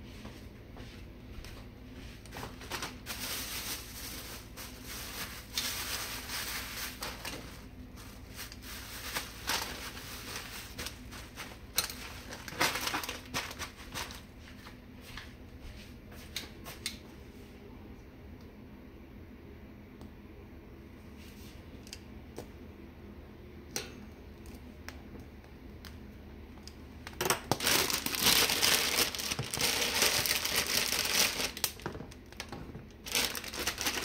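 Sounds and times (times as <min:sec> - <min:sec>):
plastic bag crinkling: 0:02.4 - 0:14.8, 0:27.4 - 0:34.0.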